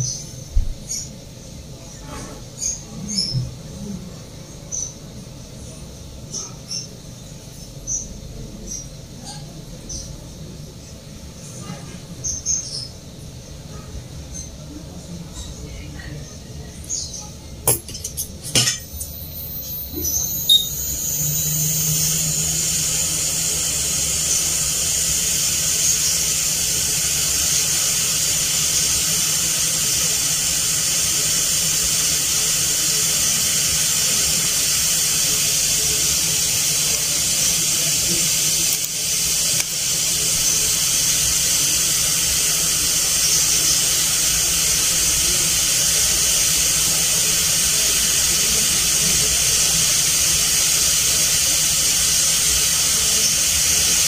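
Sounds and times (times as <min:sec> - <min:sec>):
hot air hissing: 0:16.1 - 0:54.0.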